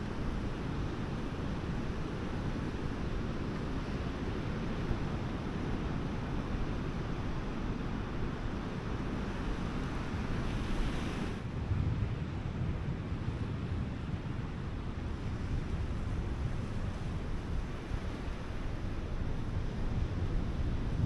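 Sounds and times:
wind buffeting microphone: 11.5 - 21.0.

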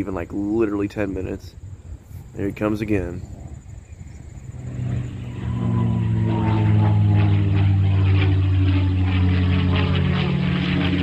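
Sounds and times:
propeller plane engine droning: 0.0 - 11.0.

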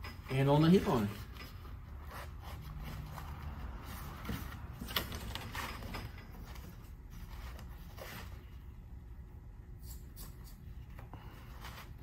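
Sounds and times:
low steady hum: 0.0 - 12.0
fabric rustling: 0.8 - 8.7.

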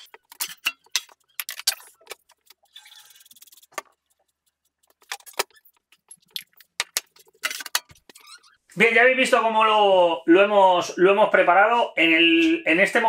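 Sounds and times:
kitchenware clicks and clinks: 0.0 - 2.2, 6.4 - 8.2.

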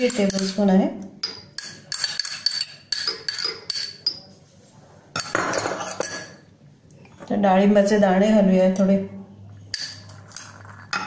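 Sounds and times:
spoon clinking on ceramic bowl: 0.0 - 0.6, 1.2 - 4.3.

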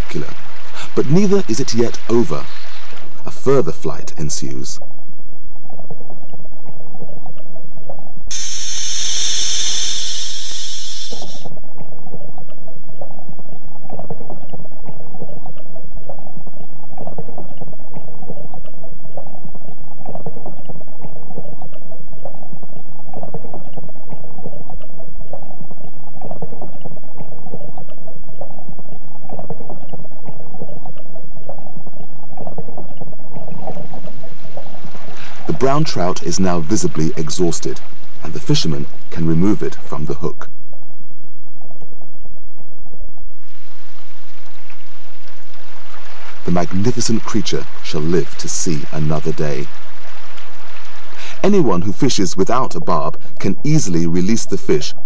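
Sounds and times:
bright hiss: 8.3 - 11.5.

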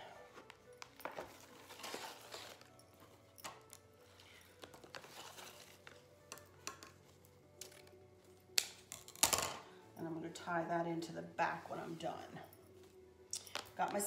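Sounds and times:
faint background music: 0.0 - 14.0.

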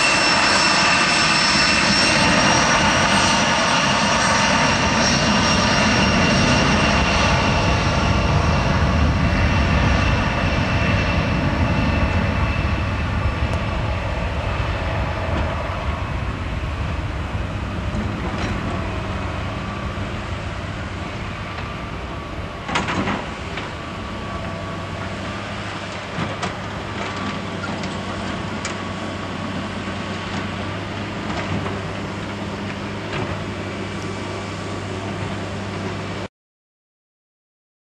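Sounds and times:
jet engines at takeoff: 0.0 - 36.3.

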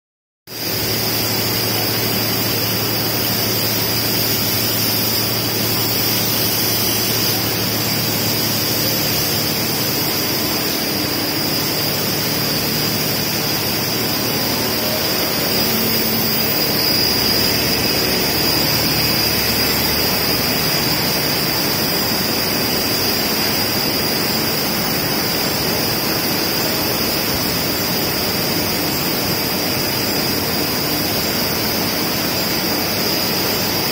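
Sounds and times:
spray nozzles hissing: 0.6 - 33.8
factory machinery din: 0.6 - 33.9
thin high whistle: 10.4 - 21.2.

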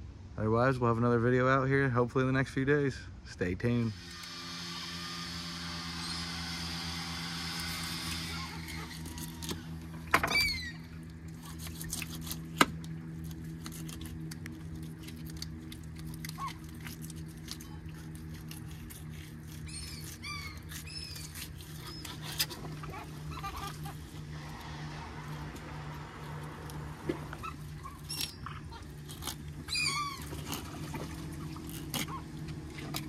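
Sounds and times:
low hum: 3.8 - 33.0
squeaky chirps: 10.2 - 11.0, 19.2 - 24.4, 27.3 - 32.4.

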